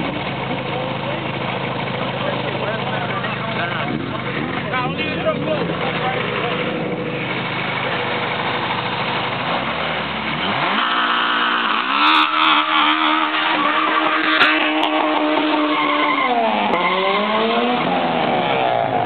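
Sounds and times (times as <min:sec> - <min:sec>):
car engine revving: 0:00.0 - 0:19.0
tyres squealing and hissing: 0:10.8 - 0:17.7.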